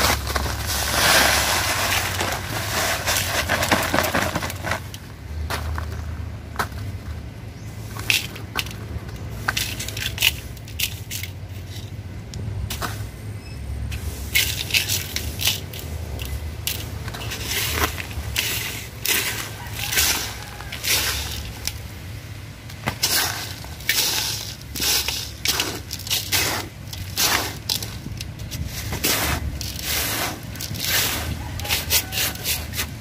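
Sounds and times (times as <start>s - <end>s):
hands scraping soil and stones: 0.0s - 13.2s, 13.8s - 33.0s.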